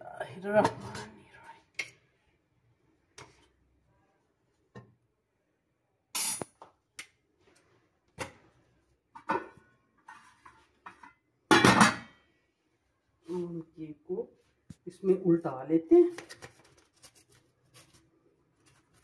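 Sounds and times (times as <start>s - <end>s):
cookware clinks and scrapes: 9.2s - 12.2s.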